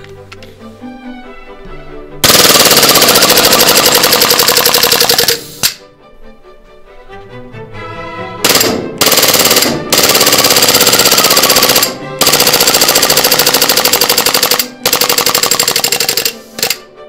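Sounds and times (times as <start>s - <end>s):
airsoft pistol firing bursts: 2.2s - 5.8s, 8.5s - 16.8s.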